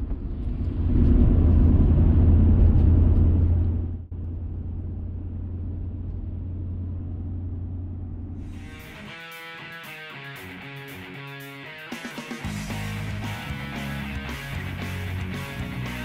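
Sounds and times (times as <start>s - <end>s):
vehicle engine and road noise: 0.0s - 9.3s.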